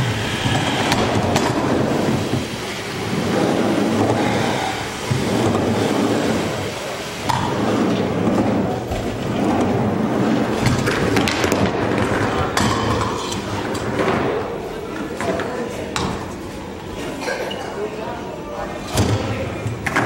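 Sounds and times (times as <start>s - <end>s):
wheels rumbling on wooden ramps: 0.4s - 12.7s.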